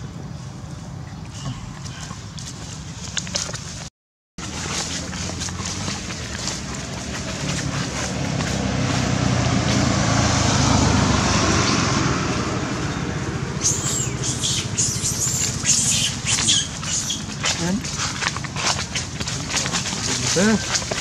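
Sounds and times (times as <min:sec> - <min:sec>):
passing motor vehicle hum: 0:04.4 - 0:21.0
sharp high clicks and chirps: 0:13.6 - 0:17.6.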